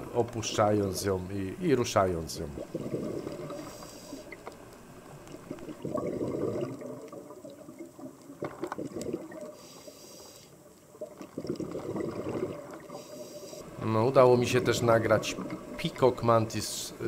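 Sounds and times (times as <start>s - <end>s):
underwater bubbles rising: 1.7s - 9.7s, 10.6s - 16.2s.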